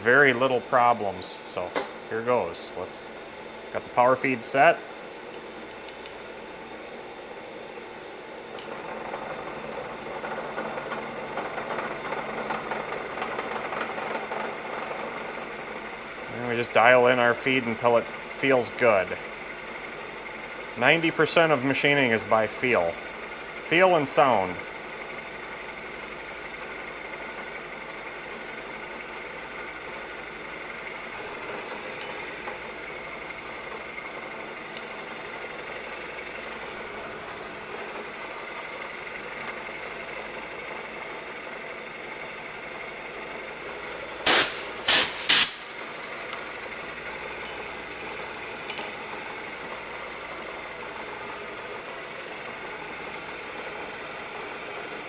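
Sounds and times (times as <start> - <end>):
milling machine cutting whir: 0.0 - 55.0
sharp loud clicks: 44.2 - 45.7.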